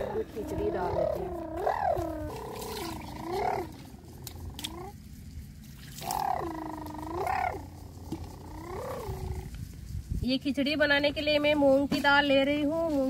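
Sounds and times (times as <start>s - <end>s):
animal wavering cries: 0.0s - 5.2s, 6.0s - 9.6s.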